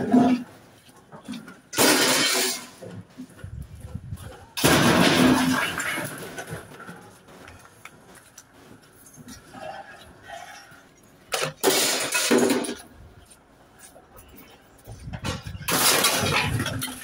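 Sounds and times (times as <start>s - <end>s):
scrap metal crashing: 1.7s - 3.0s, 4.5s - 7.1s, 11.3s - 12.9s, 15.1s - 17.0s.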